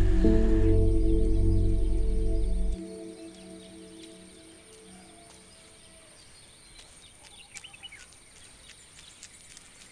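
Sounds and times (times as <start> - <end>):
high-pitched hum: 0.0 - 5.0
held ringing chord: 0.0 - 5.2
soft chirps and ticks: 3.0 - 9.9.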